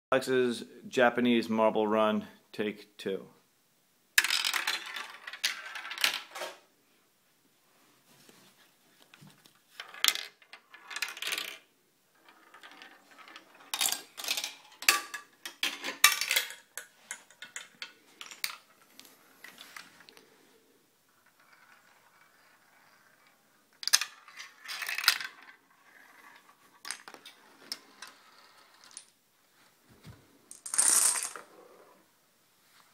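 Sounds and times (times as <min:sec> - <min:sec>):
marbles rolling and clicking: 0:04.2 - 0:06.6, 0:09.7 - 0:20.2, 0:21.1 - 0:29.2, 0:30.5 - 0:31.9.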